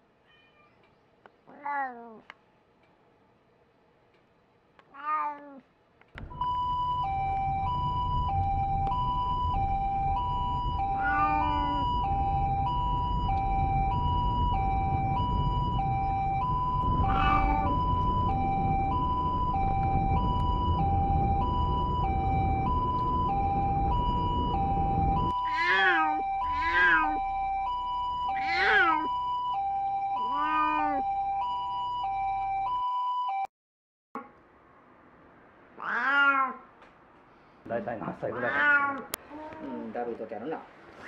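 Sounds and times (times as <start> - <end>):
cat moaning: 1.5 - 2.2, 4.9 - 5.6, 10.8 - 12.0, 17.0 - 17.8, 25.4 - 27.3, 28.3 - 29.2, 30.2 - 31.1, 35.8 - 36.7, 38.3 - 39.9
moving car rumble: 6.2 - 29.5
two-tone ambulance siren: 6.2 - 33.5.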